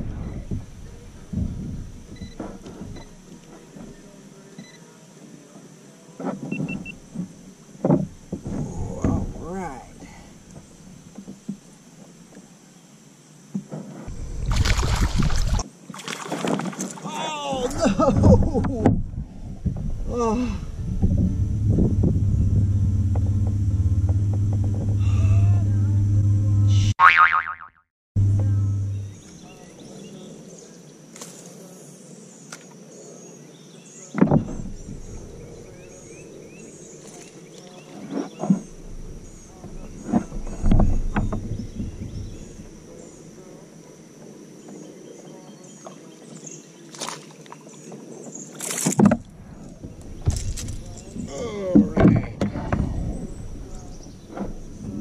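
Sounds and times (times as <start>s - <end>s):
insects droning: 0.0s - 27.4s, 28.2s - 55.0s
short low thump: 17.6s - 27.0s
birds chirping: 28.2s - 55.0s
camera handling rumbling and rustling: 50.0s - 51.3s.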